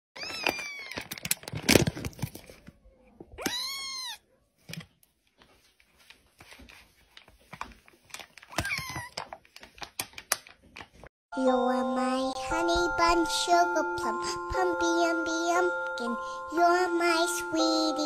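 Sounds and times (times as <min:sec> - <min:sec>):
kitten meowing: 0:03.4 - 0:04.2.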